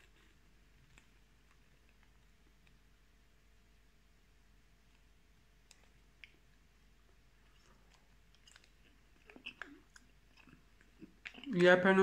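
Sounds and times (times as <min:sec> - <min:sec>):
chewing sounds: 0:05.6 - 0:11.7.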